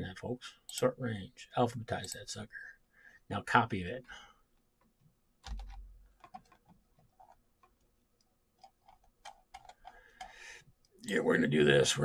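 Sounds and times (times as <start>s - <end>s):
mouse and keyboard clicks: 5.4s - 10.4s.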